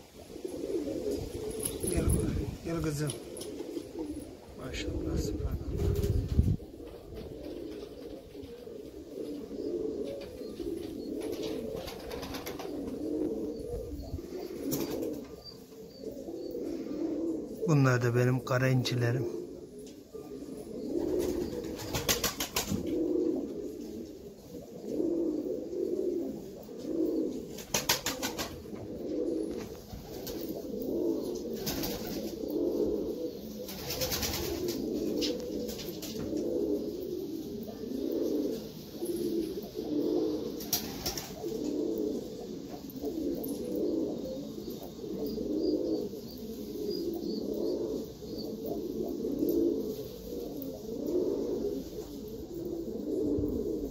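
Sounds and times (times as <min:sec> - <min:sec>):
pigeons cooing: 0:00.0 - 0:53.9
wings flapping: 0:10.2 - 0:13.1, 0:14.5 - 0:15.3, 0:21.0 - 0:23.1, 0:27.5 - 0:28.8, 0:29.4 - 0:30.6, 0:31.5 - 0:32.4, 0:33.6 - 0:36.5, 0:40.5 - 0:41.7.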